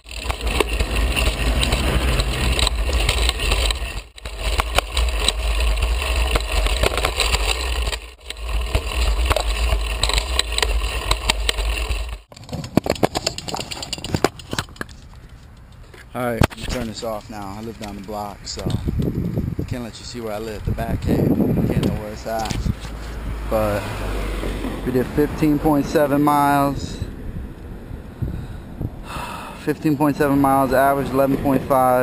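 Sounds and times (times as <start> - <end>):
rolling road noise: 0.0 - 32.0
wind rumble on microphone: 16.6 - 23.6, 26.4 - 32.0.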